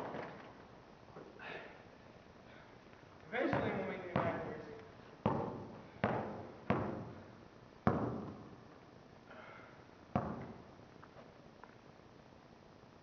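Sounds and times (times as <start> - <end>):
basketball bouncing in echoing hall: 3.4 - 8.7, 10.0 - 10.7.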